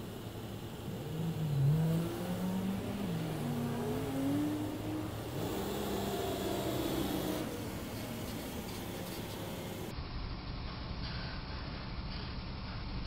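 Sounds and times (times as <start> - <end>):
car accelerating past: 0.0 - 9.9
road noise: 0.0 - 13.0.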